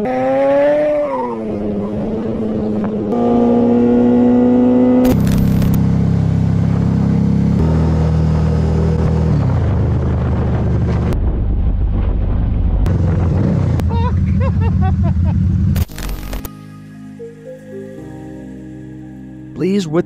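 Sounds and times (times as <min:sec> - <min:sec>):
motorcycle engine at high revs: 0:00.0 - 0:11.1
motorcycle engine running rough: 0:05.0 - 0:11.2.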